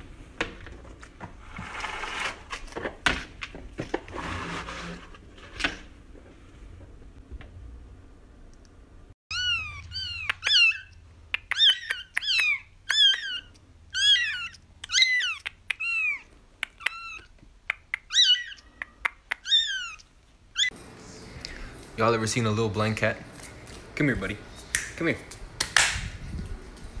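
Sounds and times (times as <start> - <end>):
kitten mewing: 9.3 - 17.3, 18.0 - 20.0.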